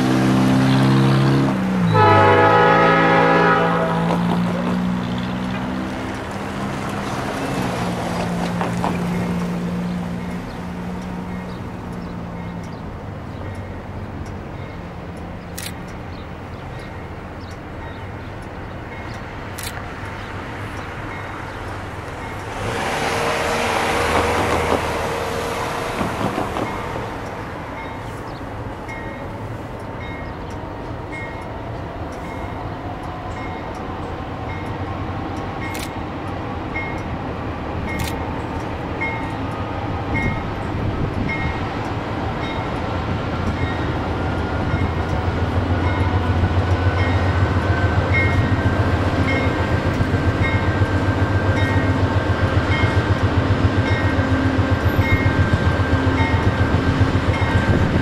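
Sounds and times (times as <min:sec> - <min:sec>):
diesel locomotive engines rumbling: 0:00.0 - 0:58.0
train bell ringing: 0:10.2 - 0:14.9, 0:20.6 - 0:22.6, 0:26.6 - 0:34.9, 0:36.7 - 0:37.2, 0:37.8 - 0:58.0.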